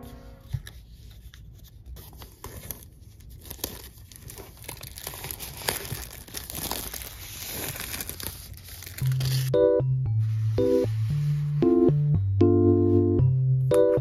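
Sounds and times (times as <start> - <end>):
plastic film crinkling: 0.6 - 9.5.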